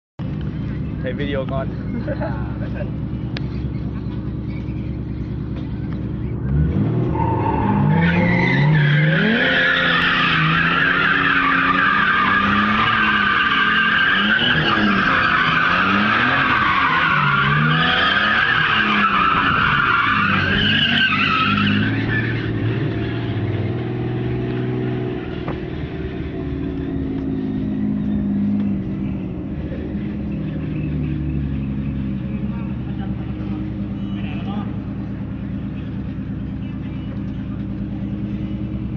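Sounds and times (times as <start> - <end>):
car engine revving: 0.2 - 38.9
tyres squealing: 6.5 - 24.9.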